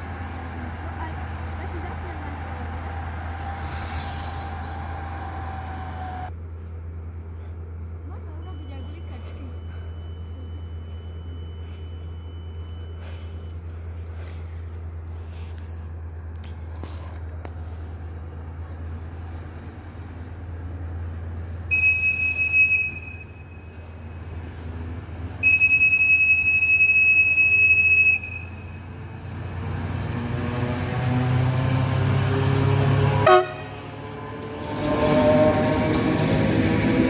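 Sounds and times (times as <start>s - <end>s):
locomotive passing close by: 0.0s - 6.4s, 7.8s - 37.0s
locomotive engine: 0.0s - 37.0s
locomotive horn: 21.7s - 23.8s, 25.4s - 28.9s, 32.8s - 36.2s.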